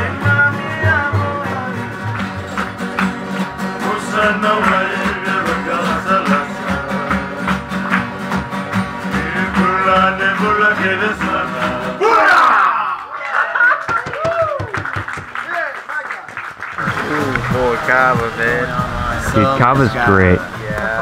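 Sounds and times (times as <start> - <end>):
men singing: 0.0 - 2.6, 3.6 - 8.1, 8.9 - 12.3, 16.8 - 21.0
acoustic guitars strumming: 0.0 - 12.1, 16.7 - 21.0
low bass line: 16.8 - 21.0.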